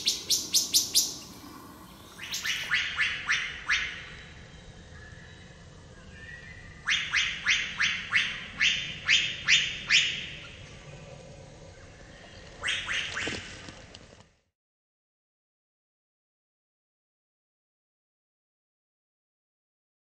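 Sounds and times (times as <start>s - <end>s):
bird alarm calls: 0.0s - 4.2s, 6.8s - 10.6s, 12.3s - 13.5s.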